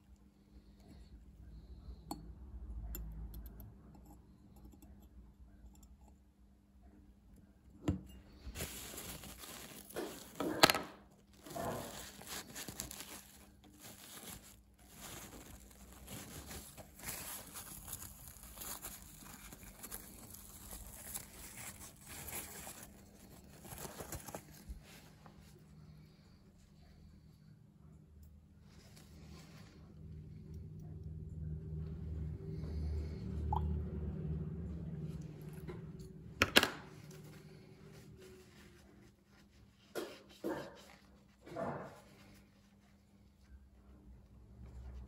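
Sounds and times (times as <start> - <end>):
paper towel crinkling and rustling: 8.3 - 25.7, 36.6 - 43.9.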